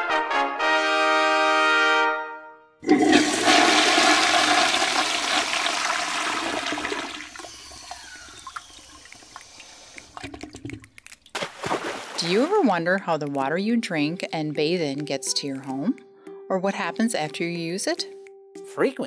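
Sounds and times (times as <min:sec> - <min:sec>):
toilet flushing: 0:02.8 - 0:10.6
water gurgling: 0:02.8 - 0:12.5.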